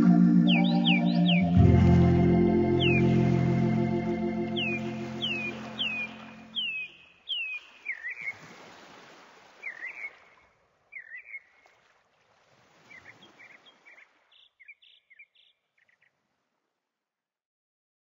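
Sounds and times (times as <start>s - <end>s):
birds chirping: 0.0s - 8.4s.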